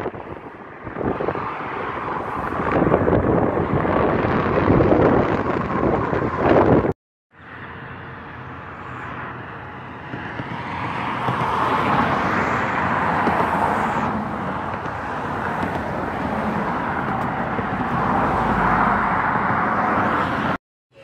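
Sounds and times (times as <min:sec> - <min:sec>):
road traffic noise: 0:00.0 - 0:21.0
car passing close by: 0:10.2 - 0:20.6.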